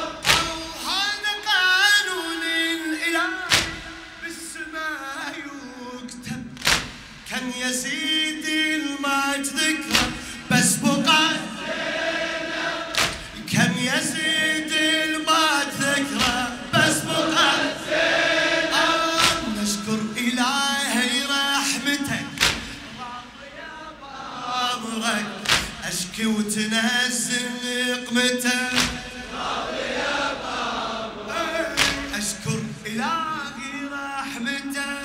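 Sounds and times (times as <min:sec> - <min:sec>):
loud sharp beat: 0:00.0 - 0:01.2, 0:03.3 - 0:04.7, 0:06.4 - 0:07.8, 0:09.8 - 0:20.2, 0:21.8 - 0:23.3, 0:25.4 - 0:26.2, 0:28.6 - 0:29.6, 0:31.4 - 0:32.8
men chanting in chorus: 0:00.0 - 0:01.5, 0:07.3 - 0:34.4.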